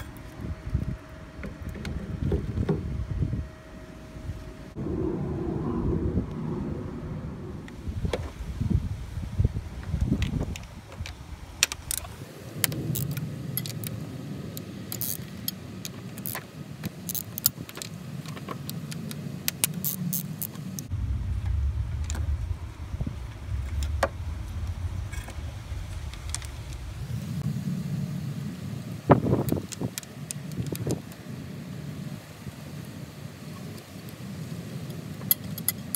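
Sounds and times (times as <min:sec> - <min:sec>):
low rumble: 0:02.0 - 0:14.8, 0:20.8 - 0:29.6
socket ratchet clicking: 0:14.9 - 0:17.9.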